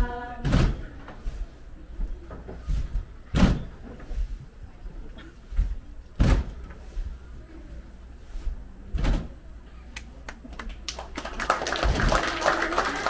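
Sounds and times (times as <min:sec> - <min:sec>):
heavy thumps: 0:05.5 - 0:06.9.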